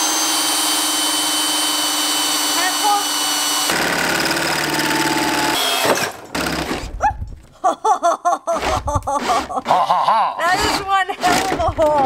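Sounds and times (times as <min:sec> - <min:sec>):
cordless drill boring metal: 0:00.0 - 0:06.9.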